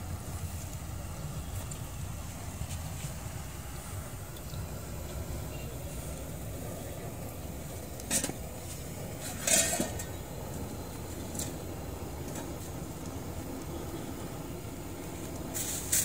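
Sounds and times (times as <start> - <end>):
outdoor background rumble: 0.0 - 16.0
metal pots clinking: 8.0 - 10.3.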